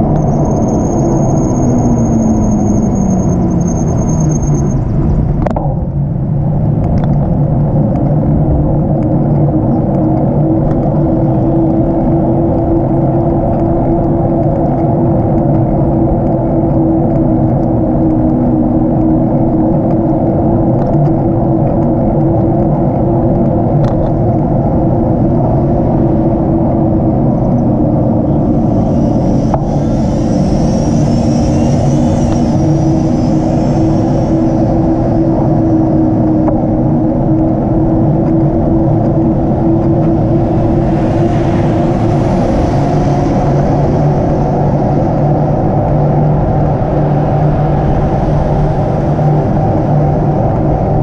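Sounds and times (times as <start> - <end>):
bicycle road rumble: 0.0 - 51.0
wind: 0.0 - 51.0
cars passing with tyre hiss: 27.8 - 37.2, 38.8 - 51.0.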